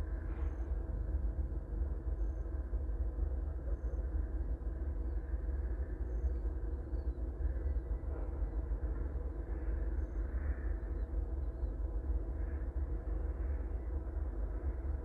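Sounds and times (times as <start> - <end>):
diesel locomotives rumbling: 0.0 - 15.0.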